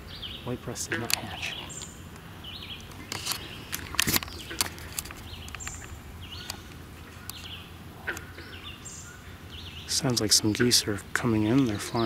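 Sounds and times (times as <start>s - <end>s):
low steady background hum: 0.0s - 12.0s
songbirds singing: 0.0s - 12.0s
sharp clicks: 0.9s - 8.3s.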